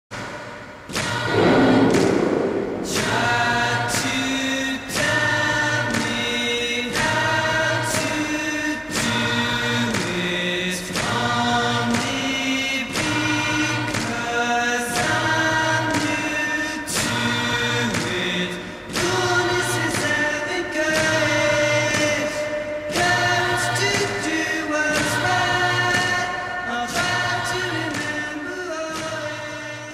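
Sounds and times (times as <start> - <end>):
choir singing sustained chords: 0.5 - 12.9.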